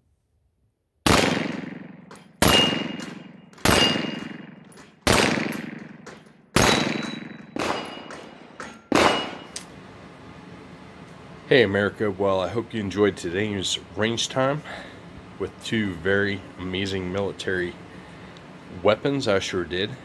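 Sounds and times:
pistol shots echoing: 1.0s - 9.6s
metallic ring of steel targets: 1.5s - 9.8s.

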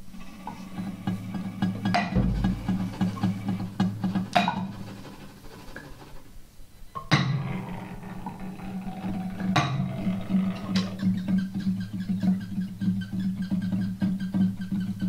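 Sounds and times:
steady low hum: 0.6s - 4.0s
struck ringing notes: 2.2s - 3.4s.

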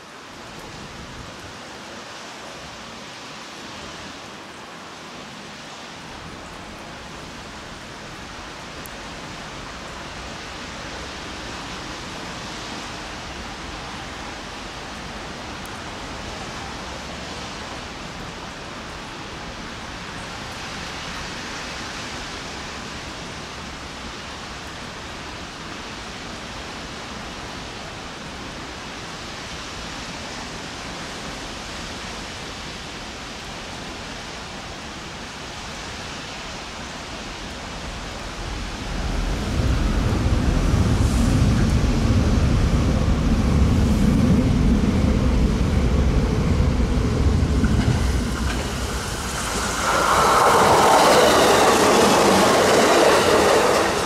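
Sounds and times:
light rain falling: 0.0s - 54.0s
approaching train: 35.8s - 54.0s.

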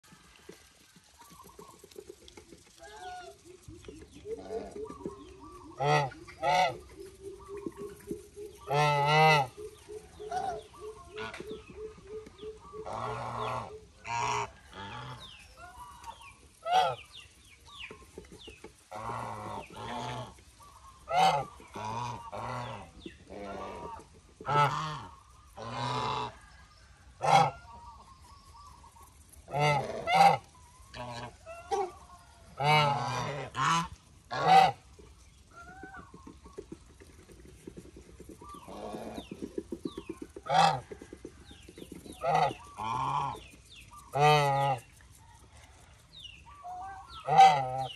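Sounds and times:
geese honking: 1.2s - 17.0s, 18.9s - 26.4s, 27.2s - 27.9s, 29.5s - 34.9s, 40.4s - 41.0s, 42.2s - 44.9s, 46.5s - 47.9s.

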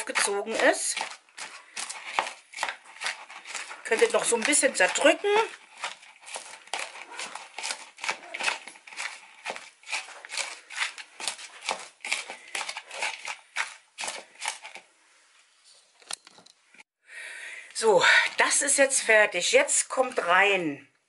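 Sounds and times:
metal spoon scraping in a bowl: 0.0s - 14.8s.

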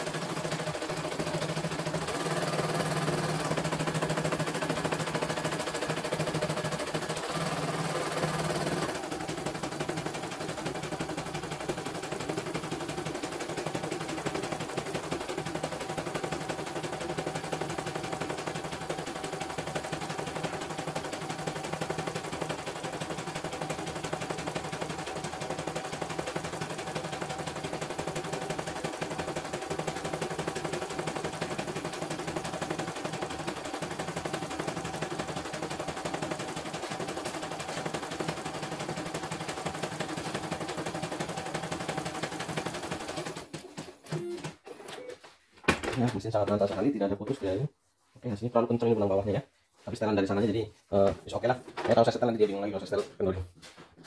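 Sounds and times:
embroidery machine stitching: 0.0s - 44.4s.

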